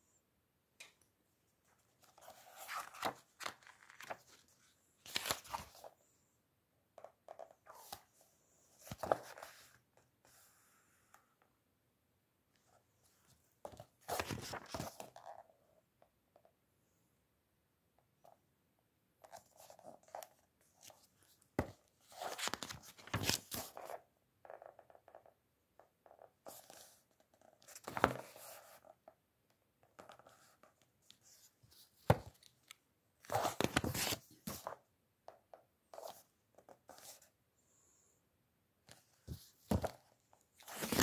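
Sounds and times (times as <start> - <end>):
book pages rustling: 1.7 - 5.9, 8.8 - 10.5, 13.7 - 15.4, 19.2 - 24.0, 27.6 - 28.9, 30.0 - 34.8, 38.9 - 40.0, 40.6 - 41.0.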